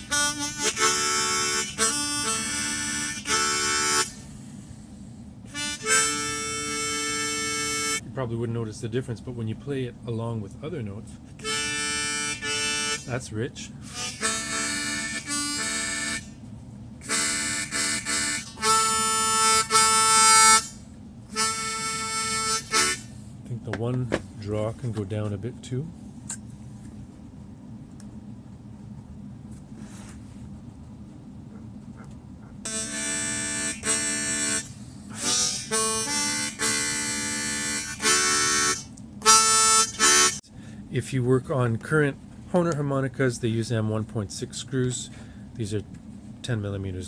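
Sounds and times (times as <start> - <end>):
harmonica notes: 0.0 - 4.4, 5.5 - 8.1, 11.4 - 16.4, 17.0 - 23.2, 32.6 - 40.5.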